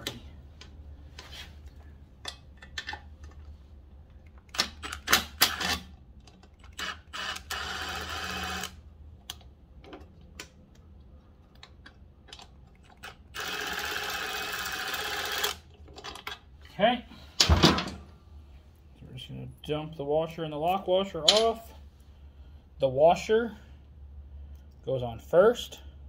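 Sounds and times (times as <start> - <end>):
metal bolts clicking: 21.2 - 21.7.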